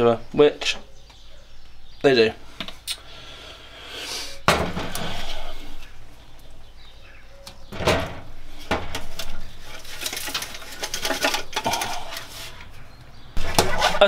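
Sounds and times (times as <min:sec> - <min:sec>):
metal clicks and scrapes: 0:08.8 - 0:12.8.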